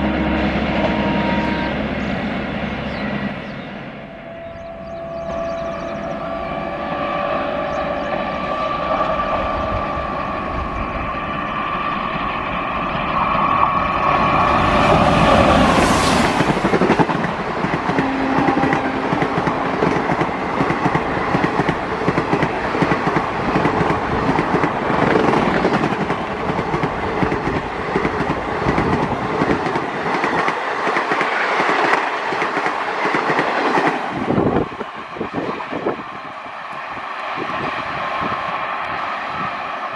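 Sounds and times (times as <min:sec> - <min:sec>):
electric locomotive whine: 0:00.0 - 0:39.9
train passing in a rush: 0:00.0 - 0:39.9
train wheels clacking over rails: 0:13.0 - 0:36.0.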